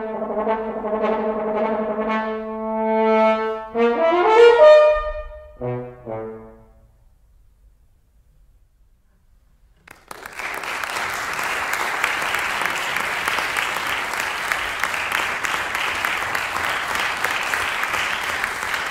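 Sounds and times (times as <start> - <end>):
audience clapping: 9.8 - 18.9.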